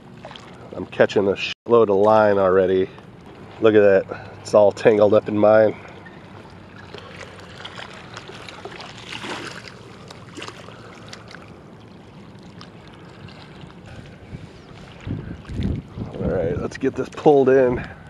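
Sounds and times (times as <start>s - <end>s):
small waves lapping on rocks: 6.8s - 11.6s
wind on microphone: 13.9s - 17.0s.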